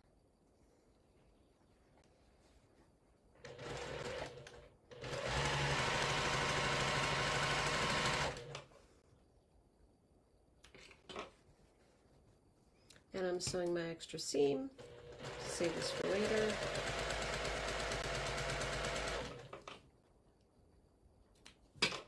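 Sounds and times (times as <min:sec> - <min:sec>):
sewing machine stitching: 0:03.4 - 0:08.7, 0:14.8 - 0:19.8.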